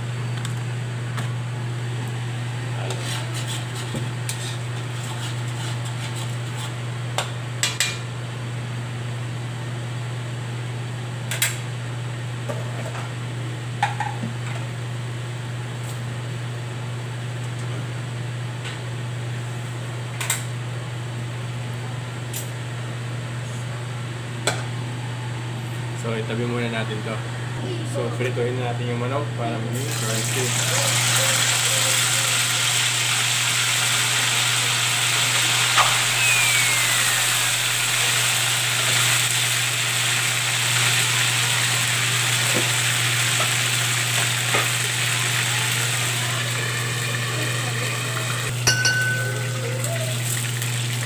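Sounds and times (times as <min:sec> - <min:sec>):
metal spatula clinking on wok: 0:48.7 - 0:49.8.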